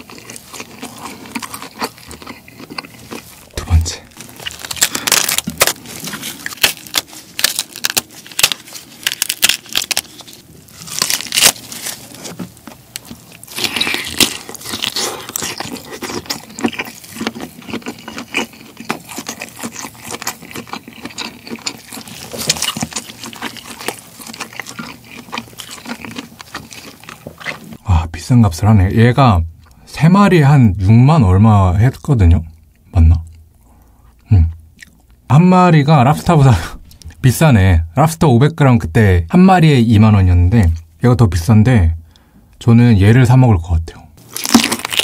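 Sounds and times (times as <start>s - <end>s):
shrimp shell cracking: 0.0s - 11.7s, 13.0s - 27.6s, 44.2s - 45.0s
shell tearing away: 4.4s - 12.2s.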